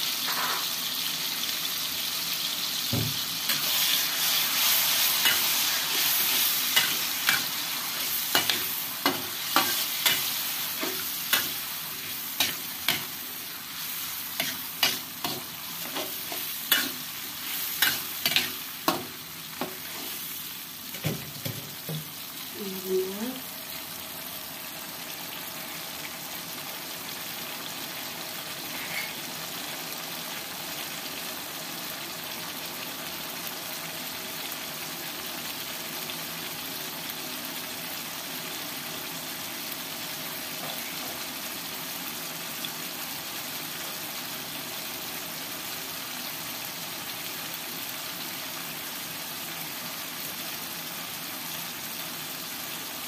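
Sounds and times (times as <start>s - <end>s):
paste sizzling in oil: 0.0s - 22.7s.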